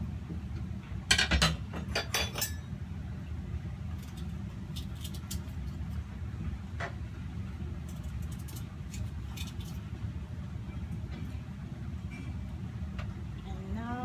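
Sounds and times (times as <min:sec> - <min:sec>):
steady low hum: 0:00.0 - 0:14.0
kitchen utensils clinking: 0:01.1 - 0:02.7.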